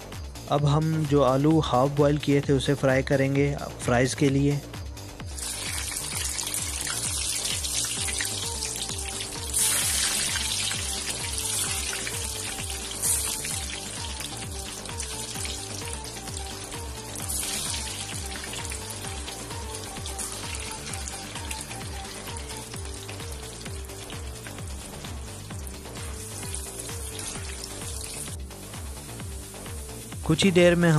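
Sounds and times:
background music with beat: 0.0 - 30.9
fries sizzling in hot oil: 5.2 - 30.9.

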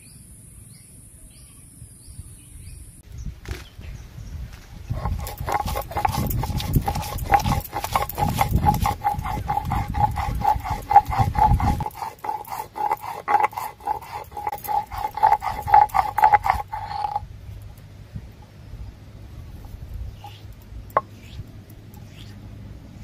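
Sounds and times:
stone grinding on stone slab: 4.9 - 17.2, 21.0 - 21.4.

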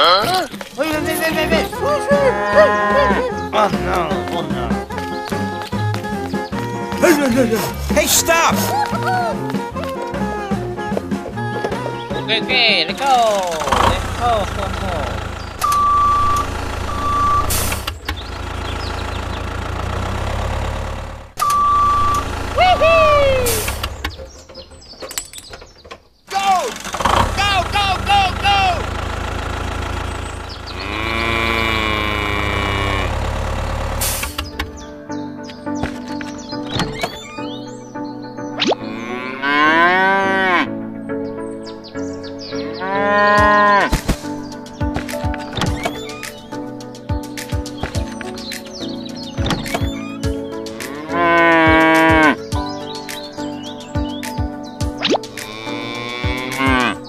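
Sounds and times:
background music: 0.0 - 20.3, 21.4 - 25.5, 26.3 - 57.0
cow mooing: 2.4 - 3.2, 30.7 - 33.7, 38.8 - 40.8, 42.6 - 43.9, 50.7 - 52.4, 55.4 - 57.0
toy tractor engine drone: 13.0 - 24.0, 26.3 - 34.5
short beep: 15.6 - 17.7, 21.4 - 22.2.

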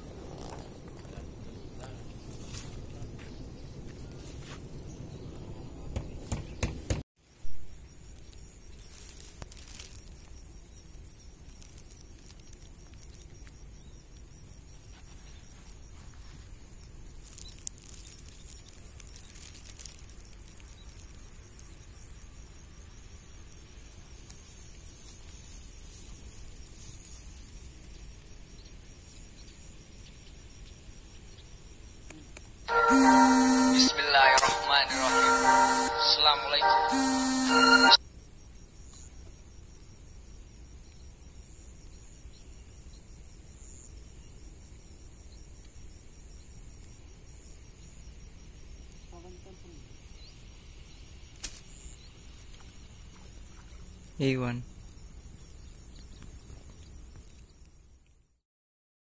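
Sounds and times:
insect chirring: 0.0 - 4.2, 7.2 - 58.3
wind rumble on microphone: 0.0 - 7.0
rustling through grass: 1.9 - 4.9, 8.2 - 13.5, 14.8 - 21.3, 23.6 - 28.1.

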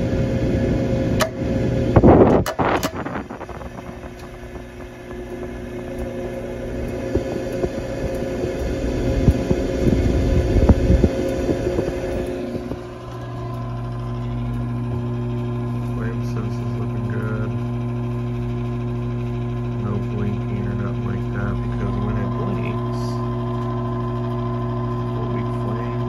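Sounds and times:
flame crackling rumble: 0.0 - 26.0
furnace hum: 0.0 - 26.0
gas burner igniting whoosh: 0.0 - 26.0.

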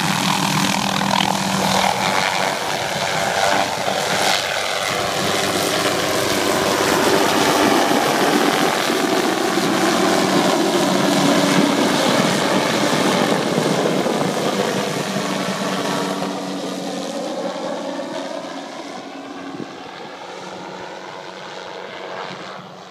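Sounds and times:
helicopter passing low: 0.0 - 22.9.

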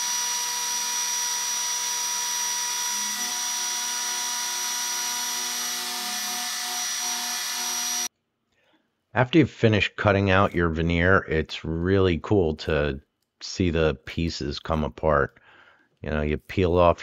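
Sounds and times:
router spindle whine: 0.0 - 8.1.

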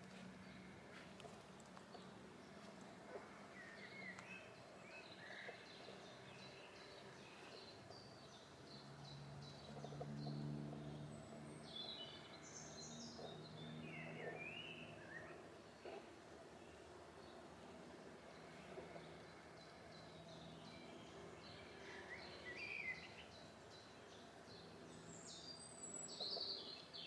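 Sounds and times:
low distant hum: 0.0 - 27.0
songbird chirps and warbles: 0.0 - 27.0.

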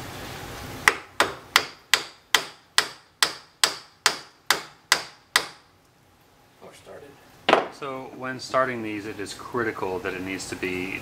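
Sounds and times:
hammer tapping metal: 0.9 - 5.6.

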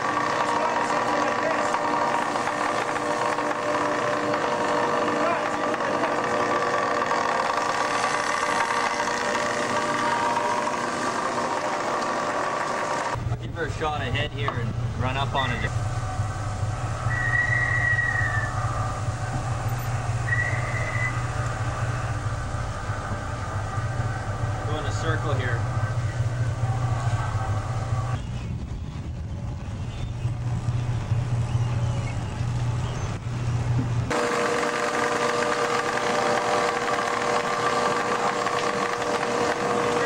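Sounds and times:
ship machinery droning: 0.0 - 28.3, 29.4 - 40.0
line hauler mechanical whine: 0.0 - 40.0
high whistling tones: 16.8 - 23.1.

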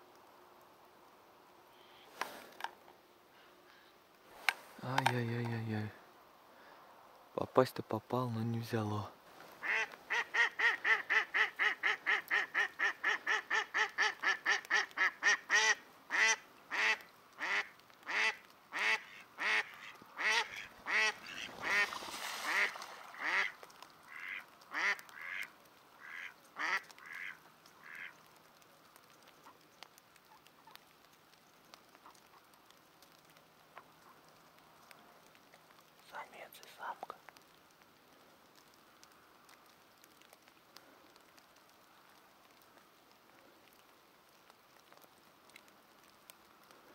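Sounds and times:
hen duck quacking: 9.6 - 21.9, 22.5 - 28.2.

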